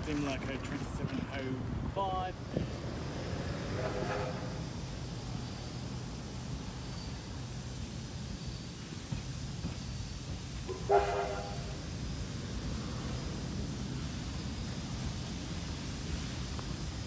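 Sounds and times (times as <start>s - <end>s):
steam train rumble: 0.0s - 17.0s
steam whistle toot: 3.6s - 4.8s, 10.7s - 12.0s.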